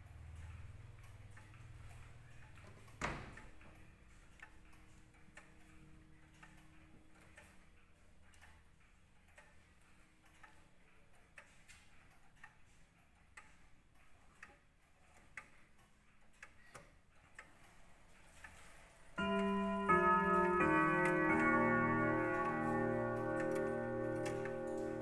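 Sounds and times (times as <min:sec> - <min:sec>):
clock ticking: 0:00.0 - 0:25.0
clock chime: 0:19.2 - 0:25.0.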